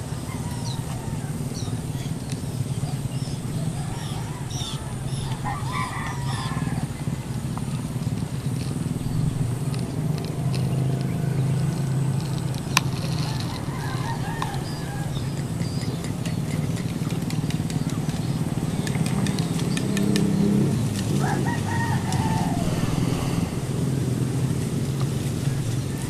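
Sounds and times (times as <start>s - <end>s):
rooster crowing: 0.0s - 2.1s, 3.3s - 7.4s, 13.0s - 15.8s, 21.0s - 24.7s
steady low hum: 0.0s - 26.0s.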